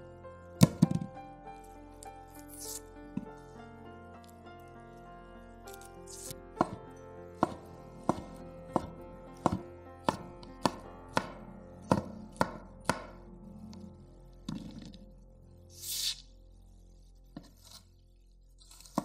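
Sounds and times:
knife chopping on wooden board: 6.6 - 6.8, 7.4 - 13.2.

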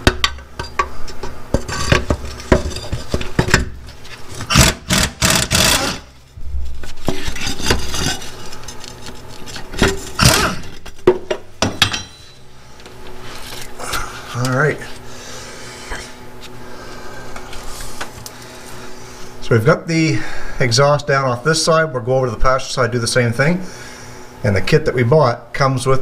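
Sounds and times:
ratchet rasping: 4.5 - 6.1.

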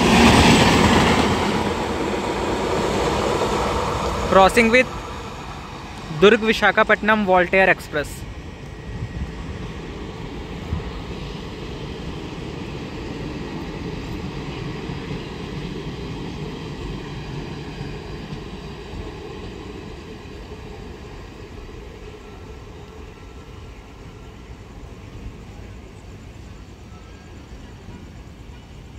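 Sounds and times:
train coaches rumbling past: 0.0 - 28.9.

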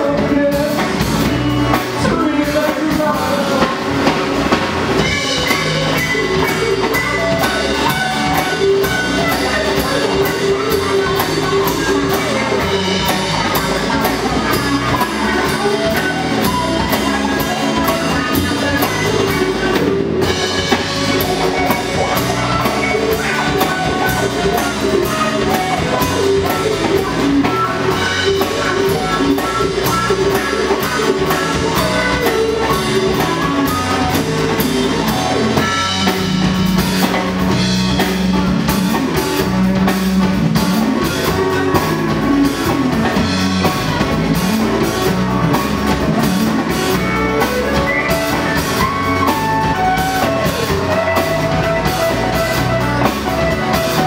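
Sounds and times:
live band playing: 0.0 - 54.0.

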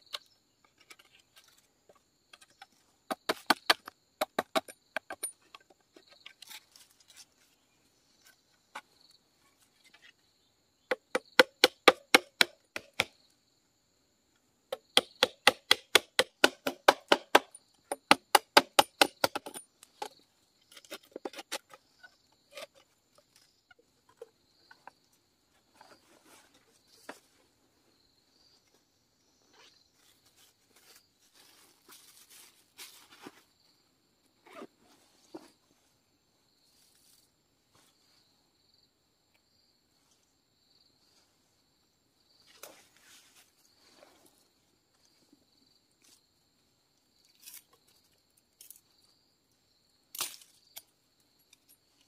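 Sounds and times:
blade chopping bamboo: 3.1 - 5.2, 10.9 - 13.1, 14.7 - 20.1.

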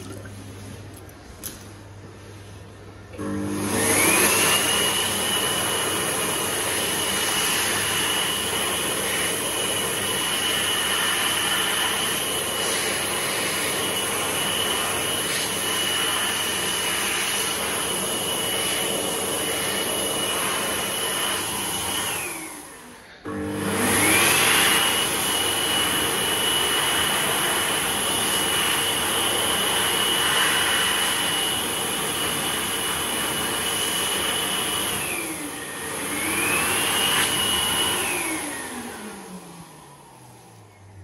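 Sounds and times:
hand dryer motor whine: 2.9 - 41.0.

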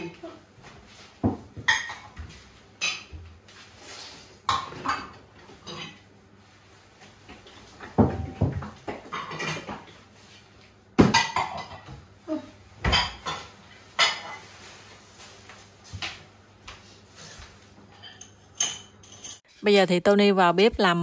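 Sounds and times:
dishes clattering: 1.2 - 3.3, 4.4 - 6.1, 7.8 - 10.0, 11.0 - 12.1, 12.8 - 14.8, 17.2 - 19.4.

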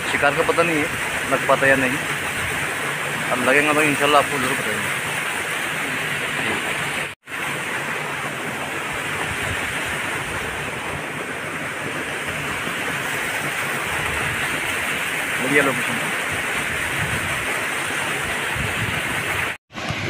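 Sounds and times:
water rushing over weir: 0.0 - 20.0.

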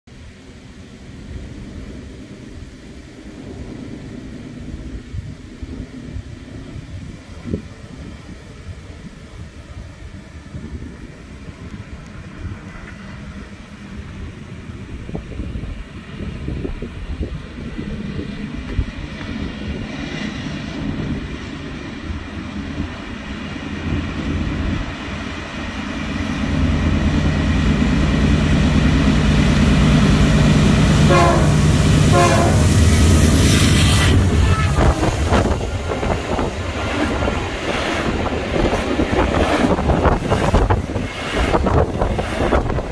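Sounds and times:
diesel locomotive engine hum: 0.1 - 42.9
rail noise: 0.1 - 42.9
train horn blasts: 30.4 - 35.5.

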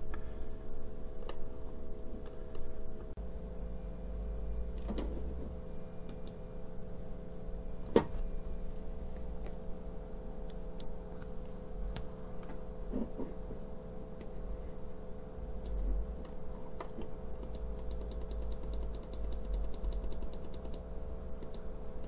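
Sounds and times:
steady electrical hum: 0.0 - 22.0.

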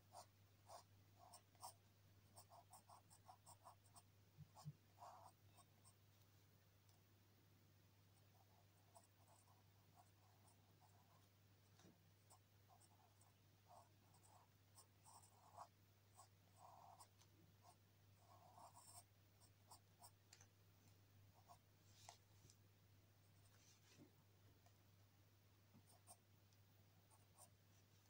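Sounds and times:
pencil scratching on paper: 0.0 - 6.0, 8.2 - 11.3, 12.3 - 20.2
low steady hum: 0.0 - 28.0.

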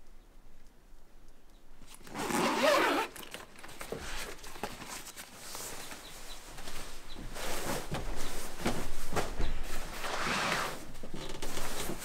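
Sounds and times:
rustling and clicks of gear: 1.8 - 9.8
zipper pulled: 1.9 - 3.4.

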